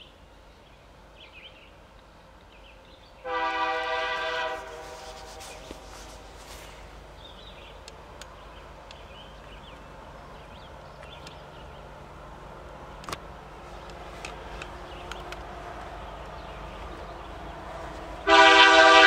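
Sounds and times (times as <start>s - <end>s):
small birds chirping: 0.0s - 3.3s, 5.2s - 18.3s
distant diesel locomotives rumbling: 0.0s - 19.0s
sharp clicks: 13.0s - 15.5s.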